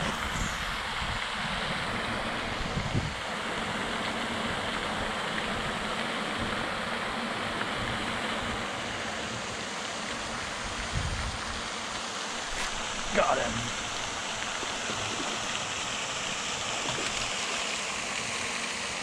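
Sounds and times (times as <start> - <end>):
wind buffeting microphone: 0.0 - 3.2, 10.6 - 11.6.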